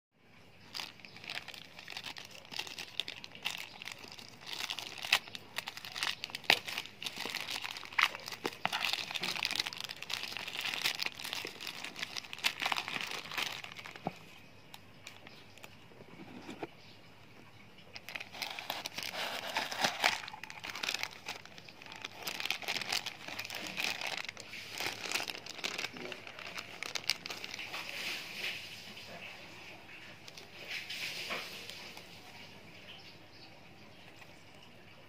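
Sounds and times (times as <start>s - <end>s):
plastic packaging crinkling and tearing: 0.6s - 16.6s, 17.8s - 29.3s, 29.9s - 33.0s.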